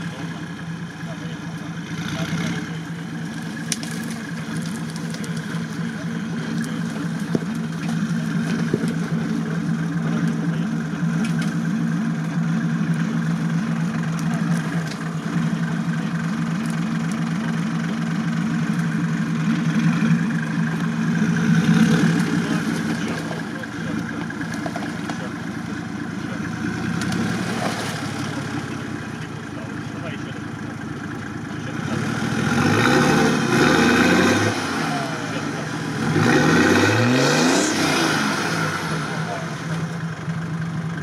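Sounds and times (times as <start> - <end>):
buggy engine running at low revs: 0.0 - 41.0.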